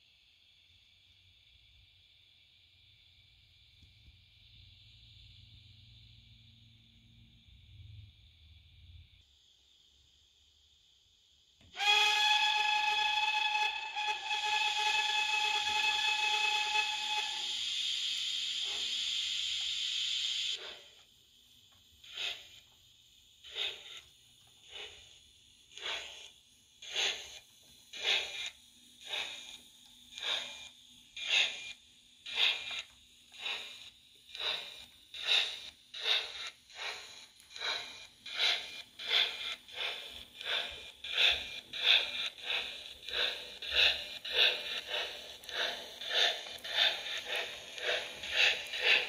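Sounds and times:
model train steam chuffs from speaker: 11.6s - 49.0s.

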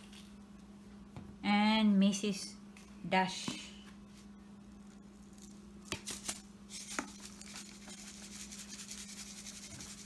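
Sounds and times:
seasoning shaker shaken: 5.3s - 10.0s.

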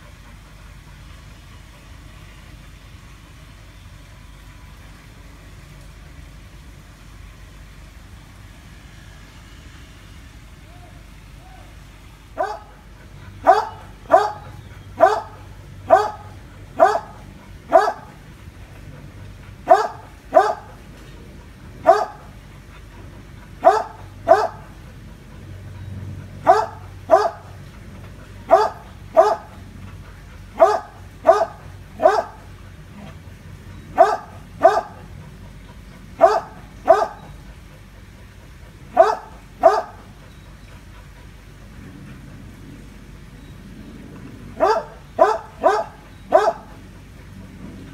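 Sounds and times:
dog barking: 12.4s - 12.8s, 13.4s - 18.2s, 19.6s - 20.8s, 21.8s - 22.3s, 23.6s - 24.7s, 26.4s - 27.6s, 28.5s - 29.6s, 30.5s - 33.2s, 33.9s - 35.1s, 36.2s - 37.3s, 38.9s - 40.1s, 44.6s - 46.8s.

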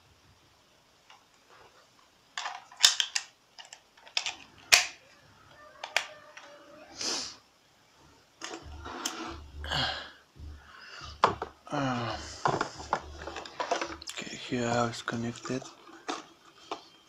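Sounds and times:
batteries clicking into plastic compartment: 2.4s - 5.0s.

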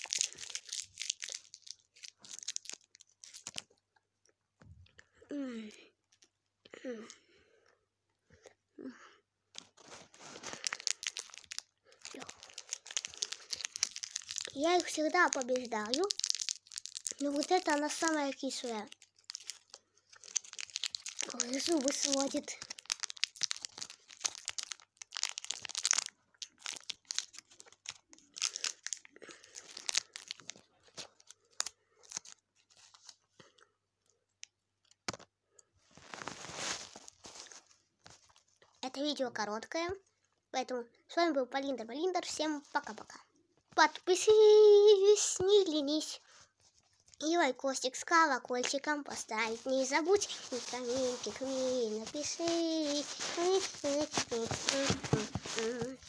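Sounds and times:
crinkling and clicking: 9.5s - 32.4s, 48.6s - 56.0s.

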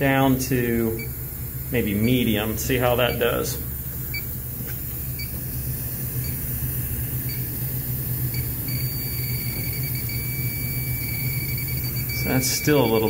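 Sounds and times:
low fan hum: 0.0s - 13.0s
leak detector beeping: 0.8s - 4.4s, 5.0s - 13.0s.

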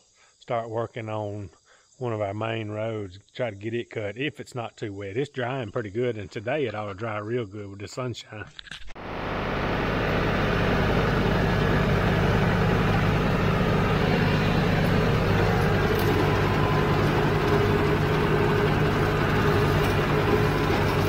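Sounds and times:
rotary cutter mowing grass: 9.0s - 21.0s
tractor engine running: 9.0s - 21.0s.

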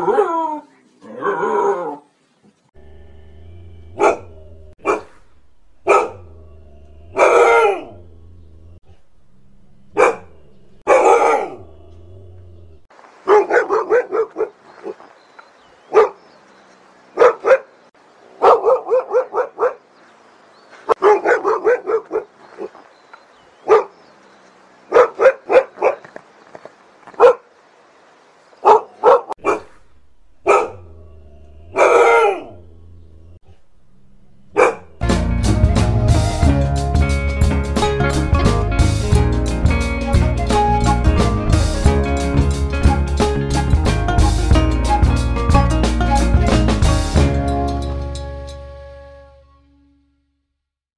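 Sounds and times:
dog barking: 3.9s - 8.1s, 9.9s - 11.9s, 13.2s - 15.0s, 15.9s - 16.2s, 17.2s - 17.8s, 18.4s - 19.8s, 20.9s - 22.8s, 23.7s - 24.0s, 24.9s - 26.1s, 27.2s - 27.5s, 28.6s - 31.0s, 31.6s - 32.7s, 34.5s - 35.0s.

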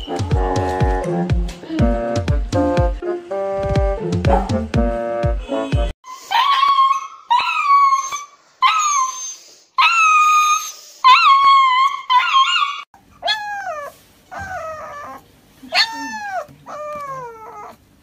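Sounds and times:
dog howling cries: 6.1s - 17.8s.

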